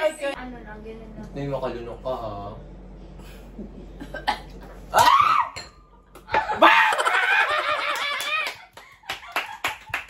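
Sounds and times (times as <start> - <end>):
people laughing shrilly: 6.3 - 8.6.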